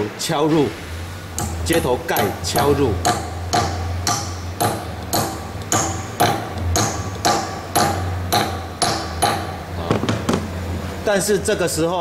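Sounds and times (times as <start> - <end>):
steady low hum: 0.0 - 12.0
hammer striking metal: 1.3 - 10.5.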